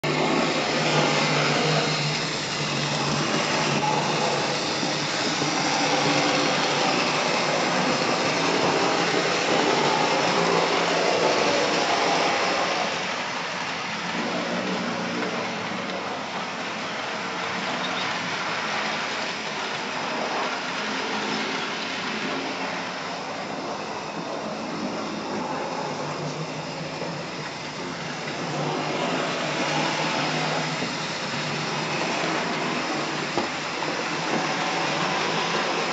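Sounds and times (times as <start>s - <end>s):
model train motors whirring: 0.0s - 35.9s
wheels on rails: 0.0s - 35.9s.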